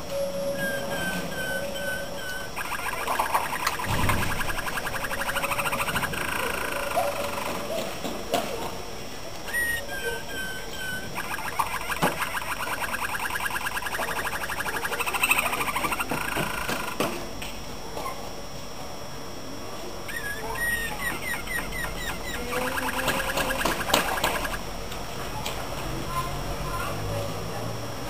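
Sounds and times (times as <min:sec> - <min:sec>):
canary singing: 0:00.1 - 0:07.8, 0:09.5 - 0:17.0, 0:20.1 - 0:24.6.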